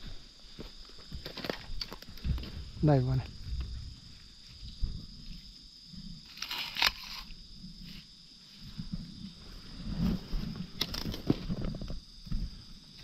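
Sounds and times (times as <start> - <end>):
high insect drone: 0.0 - 13.0
soft low thumps: 2.1 - 6.2.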